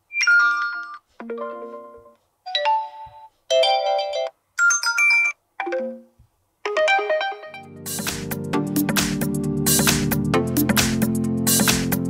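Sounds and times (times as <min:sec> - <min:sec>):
phone ringtone chimes: 0:00.1 - 0:06.1
electronic music with heavy bass: 0:07.7 - 0:12.0.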